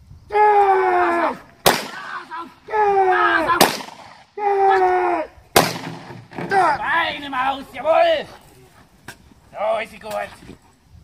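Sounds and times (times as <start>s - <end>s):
person yelling: 0.3s - 3.7s, 4.4s - 5.4s, 6.4s - 8.2s.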